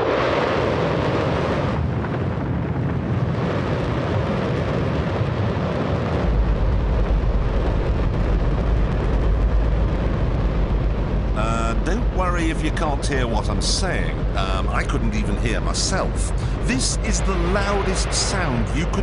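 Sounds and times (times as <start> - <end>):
deep rumble: 0.0 - 19.0
rocket engine roaring: 0.0 - 19.0.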